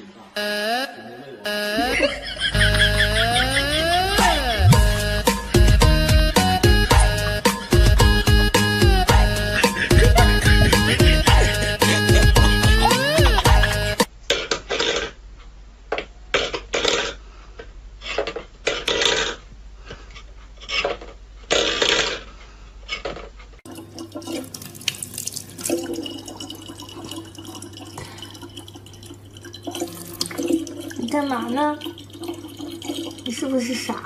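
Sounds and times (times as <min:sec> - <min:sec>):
tap water running into bottle: 0:23.7 - 0:33.5.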